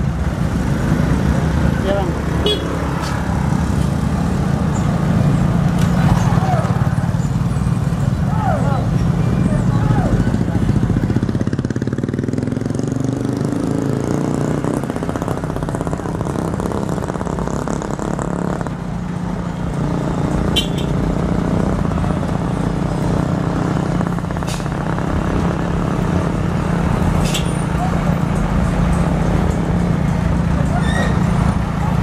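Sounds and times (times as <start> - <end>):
diesel trucks driving past: 0.0 - 32.0.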